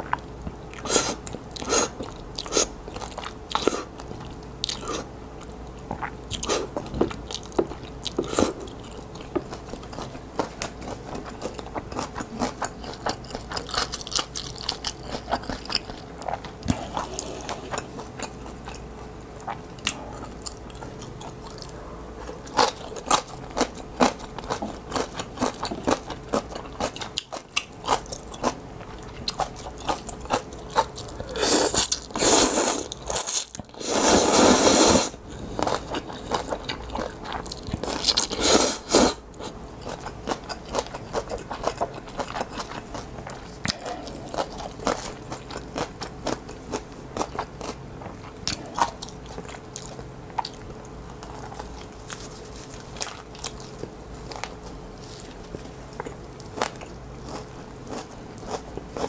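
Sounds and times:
faint hum: 0.0s - 59.0s
wet chewing: 39.8s - 59.0s.

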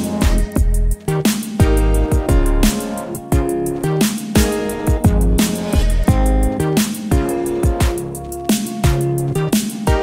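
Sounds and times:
steady drum beat: 0.0s - 10.0s
deep sliding bass notes: 0.2s - 7.7s.

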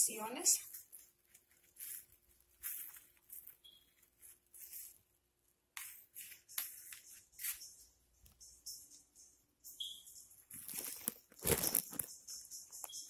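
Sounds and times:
plastic glove rustling: 0.5s - 7.7s, 10.5s - 12.2s.

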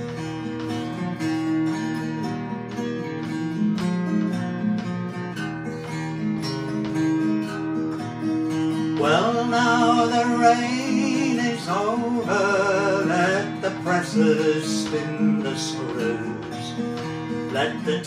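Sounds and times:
fingerpicked acoustic guitar: 0.0s - 18.0s
person singing: 9.0s - 16.8s, 17.5s - 18.0s.

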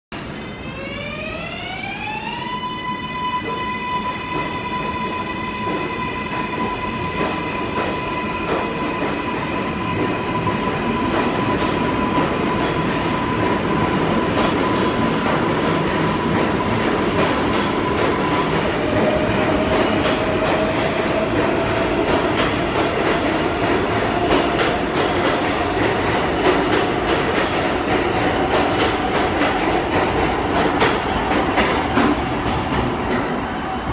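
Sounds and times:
subway train motor whine: 0.2s - 25.0s.

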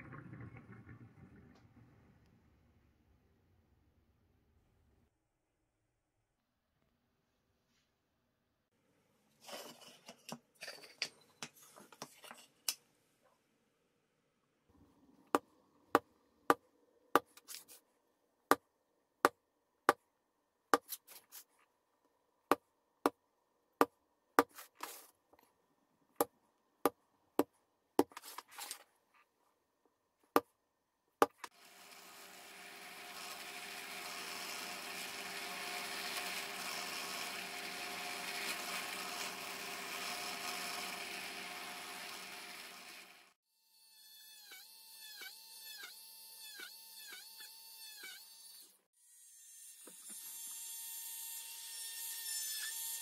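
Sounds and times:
drill press motor running: 31.5s - 43.4s.

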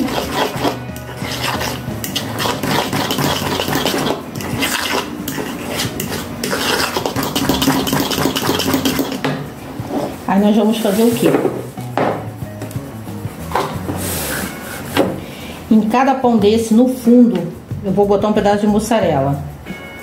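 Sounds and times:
fork beating eggs in a bowl: 0.0s - 9.3s.

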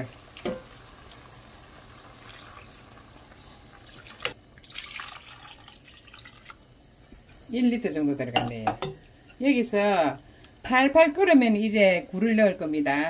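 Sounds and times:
water pouring into metal pot: 0.0s - 6.6s.

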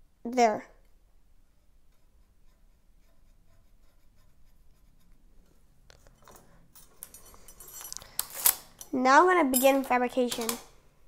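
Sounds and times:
marker pen scratching on metal: 1.5s - 5.3s.

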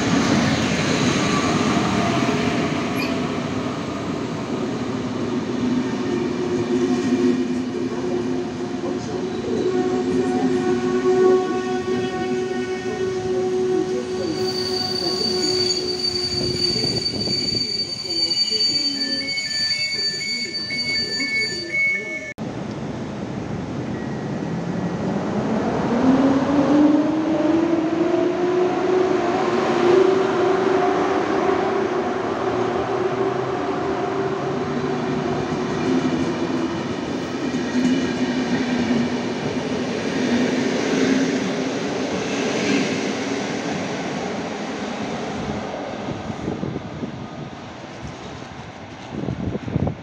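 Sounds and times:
electric locomotive whine: 0.3s - 22.3s.

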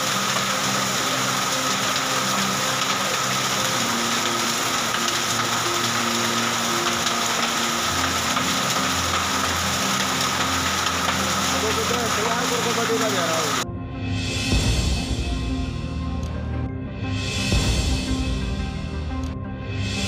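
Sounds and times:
rain and hail falling: 0.0s - 13.6s.

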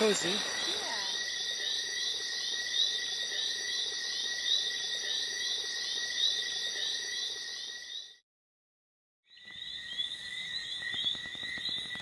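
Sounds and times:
frogs chirping: 0.0s - 8.2s, 9.3s - 12.0s
insects trilling: 0.0s - 8.2s.

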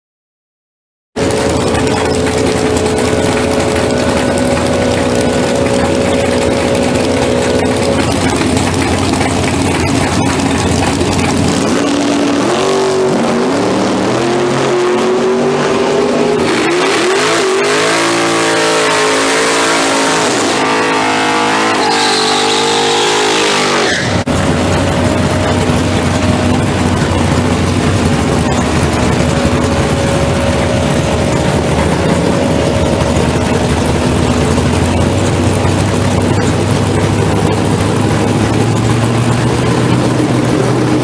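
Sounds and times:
car engine revving: 1.2s - 41.0s
tyre squeal: 21.5s - 24.3s.

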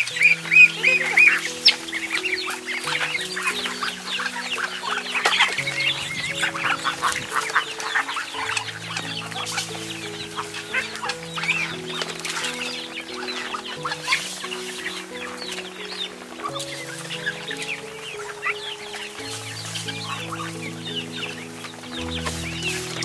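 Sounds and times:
chickens and ducks calling: 0.0s - 23.0s
soft background music: 0.0s - 23.0s.

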